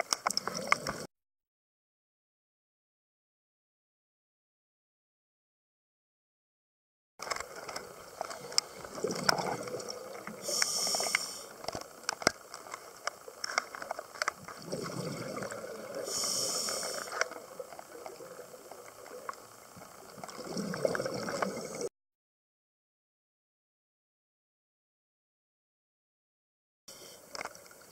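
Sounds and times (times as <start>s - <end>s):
underwater clicks and pops: 0.0s - 1.1s, 7.2s - 15.8s
gurgling exhaled bubbles: 0.2s - 1.1s, 7.8s - 11.7s, 14.3s - 21.9s
regulator inhale hiss: 10.3s - 11.7s, 15.9s - 17.4s, 26.9s - 27.4s.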